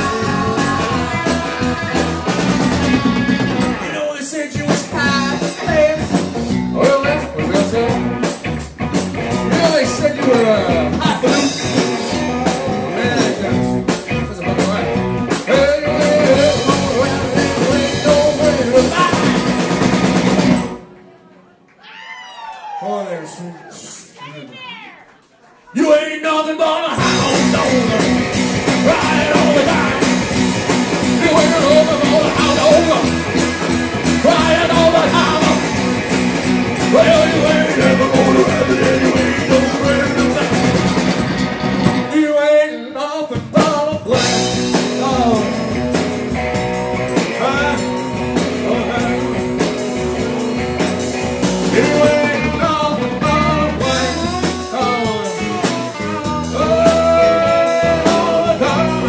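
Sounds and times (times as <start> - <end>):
live rock band playing: 0.0 - 21.0, 27.0 - 59.0.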